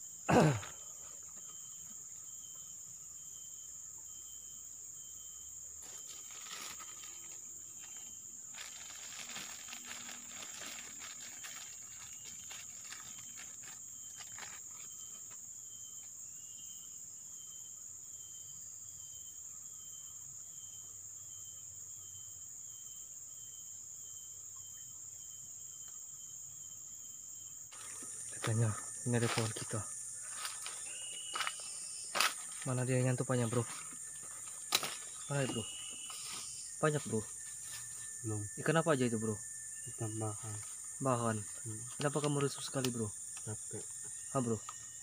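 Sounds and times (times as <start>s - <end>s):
insect chirping: 0.0s - 45.0s
insects droning: 0.0s - 45.0s
close rustling and crackling: 5.8s - 15.4s, 27.7s - 38.1s.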